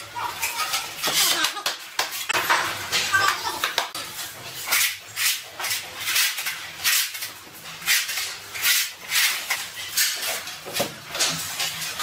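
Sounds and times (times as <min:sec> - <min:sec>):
trowel scraping adhesive on concrete: 0:03.2 - 0:11.9.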